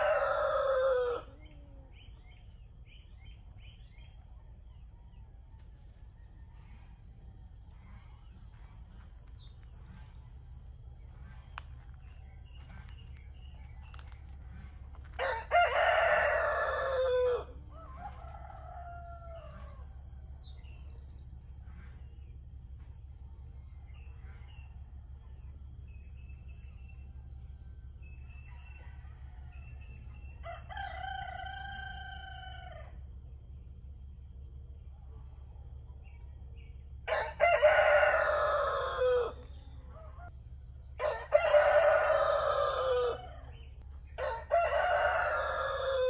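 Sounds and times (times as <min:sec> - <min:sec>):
rooster crowing: 0:00.0 - 0:02.0, 0:15.1 - 0:20.0, 0:28.4 - 0:33.0, 0:37.1 - 0:40.3, 0:40.9 - 0:46.0
low background rumble: 0:00.0 - 0:46.0.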